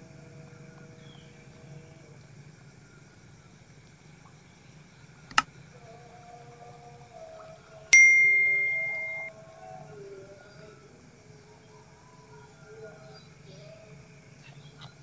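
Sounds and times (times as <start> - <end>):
sharp click: 5.3 - 5.5
bright bell ding: 8.0 - 9.3.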